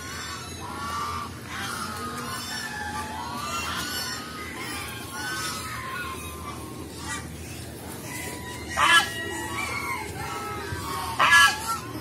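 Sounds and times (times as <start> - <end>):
ducks quacking: 0.0 - 12.0.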